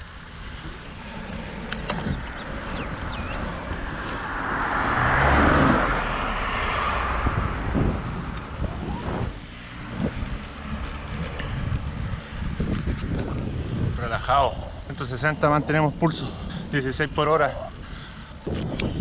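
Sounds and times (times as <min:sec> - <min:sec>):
car passing close by: 0:00.7 - 0:12.7.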